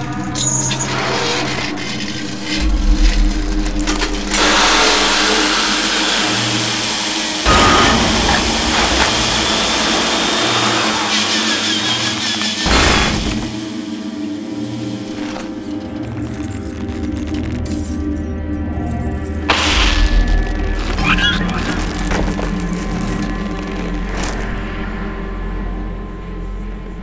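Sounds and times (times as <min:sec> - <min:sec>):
low droning hum: 0:00.0 - 0:27.0
power drill whirring and grinding: 0:03.6 - 0:13.6.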